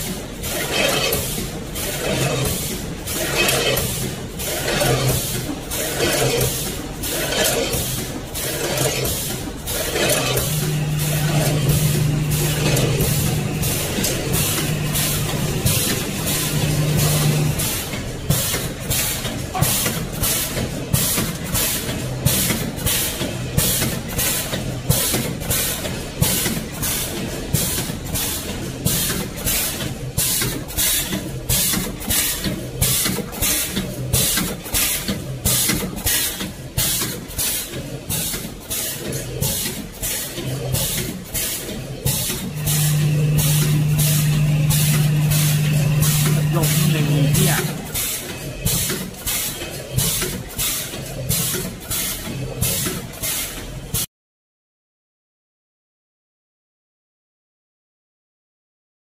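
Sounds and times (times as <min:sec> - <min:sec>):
packing machine hissing pulses: 0:00.8 - 0:21.1, 0:42.1 - 0:50.2
machine low hum: 0:08.7 - 0:19.1, 0:42.3 - 0:48.1.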